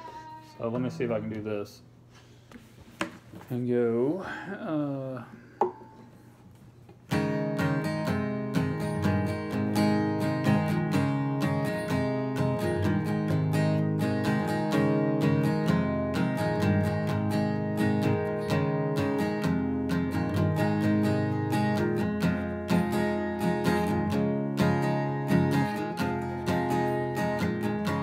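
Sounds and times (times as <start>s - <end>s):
acoustic guitar strumming: 7.0s - 28.0s.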